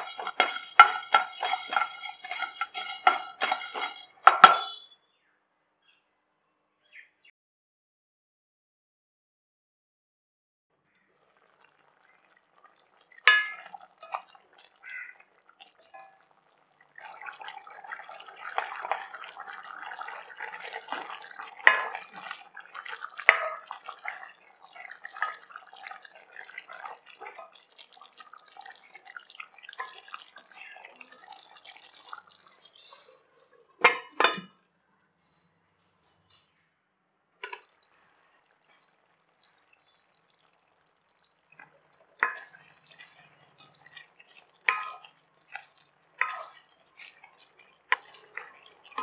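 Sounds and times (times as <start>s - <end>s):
spatula scraping metal pan: 0.0s - 4.7s, 20.2s - 22.4s, 42.2s - 47.3s
thick gravy bubbling: 0.0s - 4.7s, 11.0s - 34.2s, 37.4s - 49.0s
glass lid clinking: 0.0s - 4.8s, 13.3s - 13.7s, 21.6s - 22.1s, 33.8s - 34.5s.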